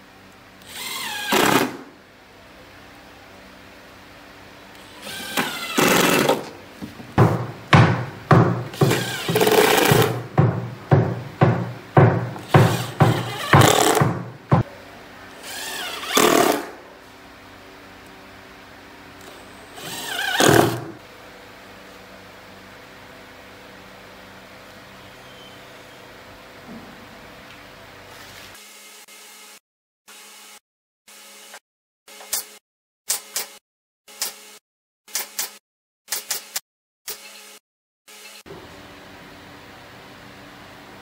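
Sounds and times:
impact driver driving screws: 4.8 - 6.5, 8.7 - 10.2, 12.4 - 14.2, 15.4 - 16.7, 19.8 - 21.0.

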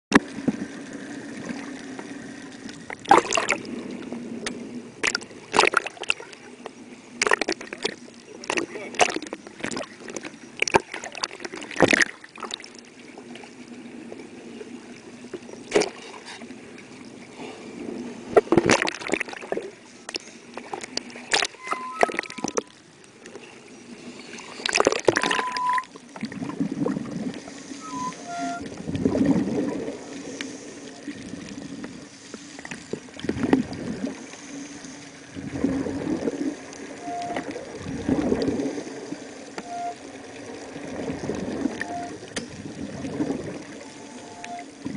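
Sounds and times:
muffled underwater swishes: 0.1 - 44.9
water splashing against camera housing: 20.6 - 22.8.

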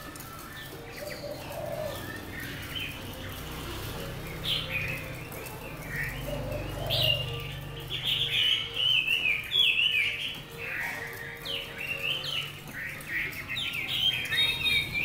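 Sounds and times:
bird whistling and chirping: 0.0 - 3.1, 4.5 - 15.0.

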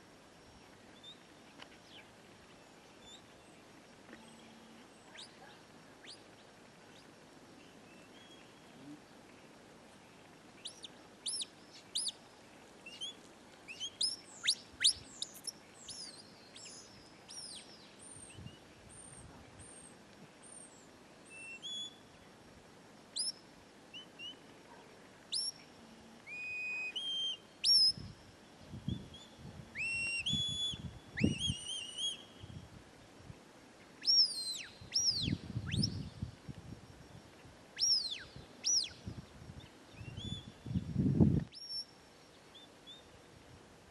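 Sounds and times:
shepherd's whistle: 12.9 - 16.1, 23.2 - 23.4, 25.3 - 25.6, 26.3 - 28.1, 28.9 - 32.4, 34.0 - 36.1, 37.8 - 39.0.

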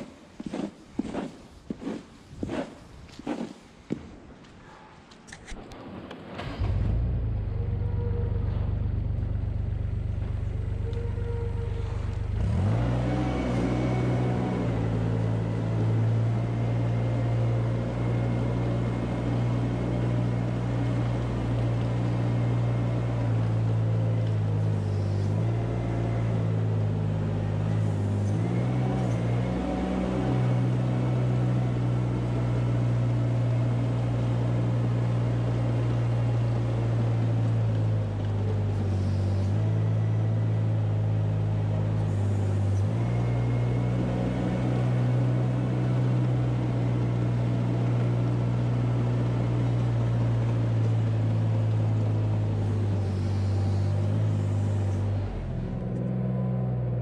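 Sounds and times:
farm machine engine running: 6.4 - 57.0.

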